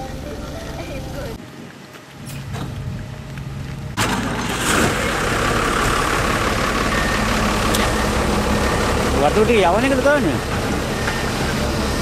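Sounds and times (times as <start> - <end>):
heavy diesel engine running: 2.7 - 12.0.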